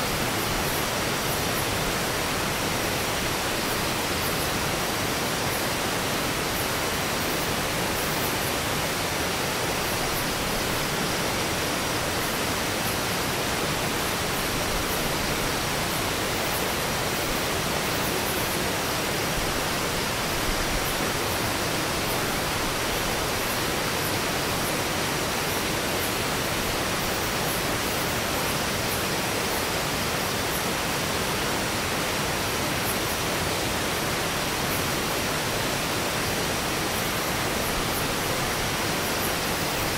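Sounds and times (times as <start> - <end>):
river water rushing over rocks: 0.0 - 39.9.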